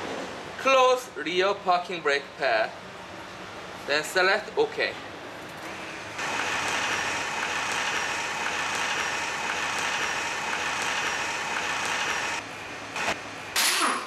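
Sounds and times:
brake caliper motors whining: 5.4 - 12.4.

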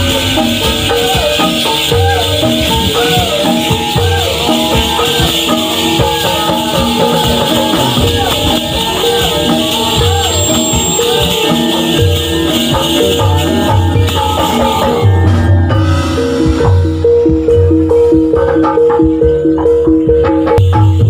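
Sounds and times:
leg bells jingling: 0.0 - 21.0
traditional dance music: 0.0 - 21.0.

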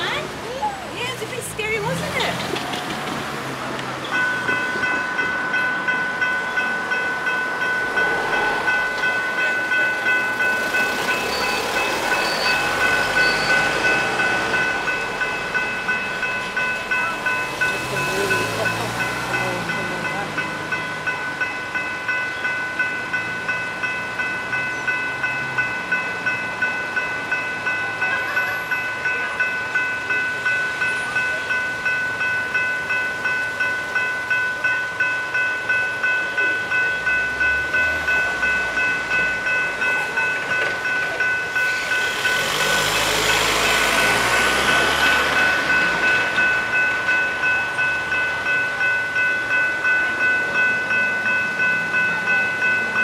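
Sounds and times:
level crossing bells ringing: 0.0 - 53.0
train passing: 0.0 - 53.0.

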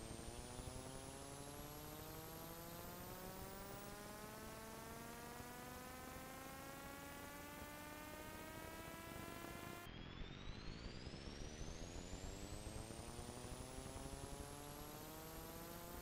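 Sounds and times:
faint high whine: 0.0 - 16.0.

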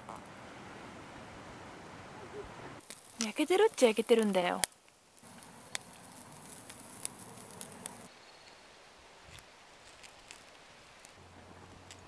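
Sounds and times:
outdoor background: 0.0 - 12.0
wood fire crackling and popping: 2.7 - 8.6, 9.2 - 12.0.

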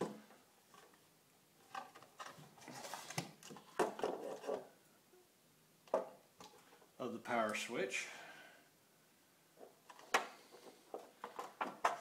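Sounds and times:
hands handling metal box: 9.6 - 12.0.

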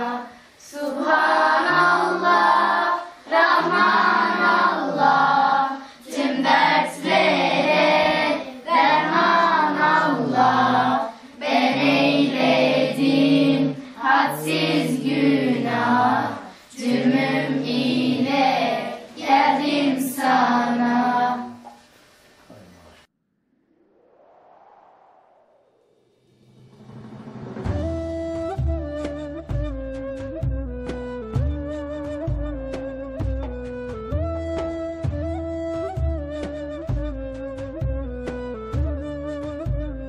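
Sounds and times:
children singing a hymn: 0.0 - 21.7.

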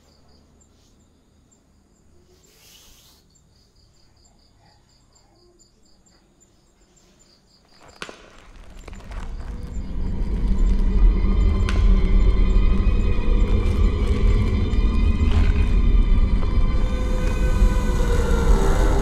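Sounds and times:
cricket chirping: 0.0 - 19.0
low drone music: 8.9 - 19.0.

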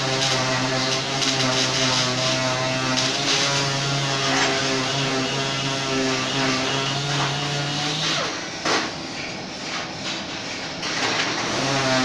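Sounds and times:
welding arc crackling: 0.0 - 8.8
welding machine hum: 0.0 - 12.0.

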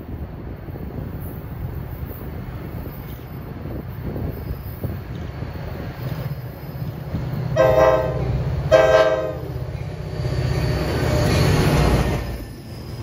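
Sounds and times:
low rumble of train: 0.0 - 13.0
locomotive horn blasts: 7.6 - 9.6.

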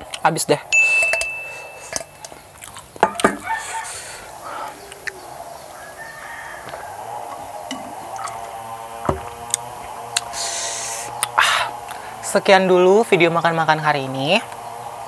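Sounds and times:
chickens clucking: 1.5 - 12.0
rooster crowing: 3.0 - 9.4.

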